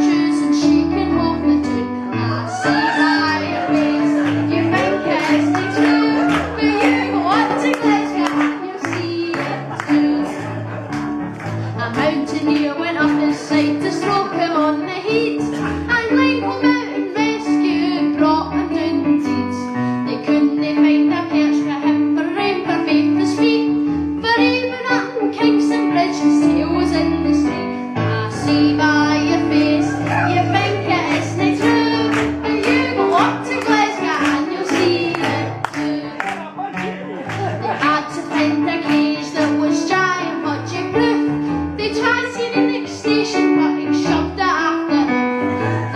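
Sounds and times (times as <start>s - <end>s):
instrumental accompaniment: 0.0s - 45.9s.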